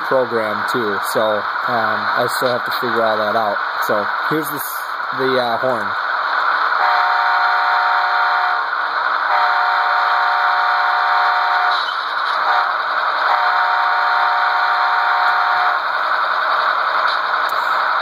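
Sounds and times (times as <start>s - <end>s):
model train horn blasts: 6.8s - 8.6s, 9.3s - 11.8s, 12.4s - 15.8s.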